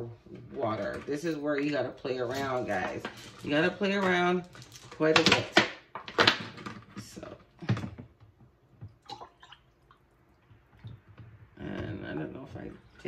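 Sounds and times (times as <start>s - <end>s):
water pouring into glass pitcher: 8.9s - 10.9s.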